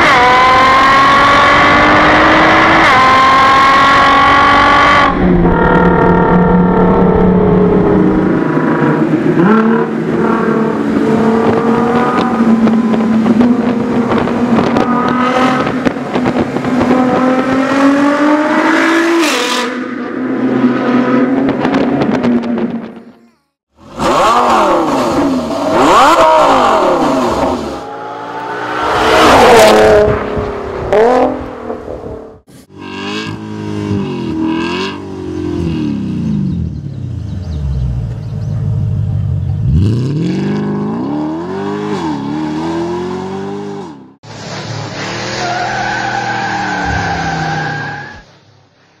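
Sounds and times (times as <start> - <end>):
car engine revving hard: 0.0 - 22.7, 23.9 - 30.3, 39.6 - 44.2.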